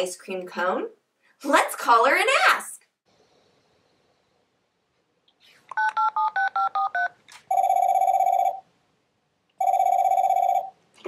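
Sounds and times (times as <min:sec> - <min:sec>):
telephone ringing: 0:05.8 - 0:08.7, 0:09.6 - 0:10.8.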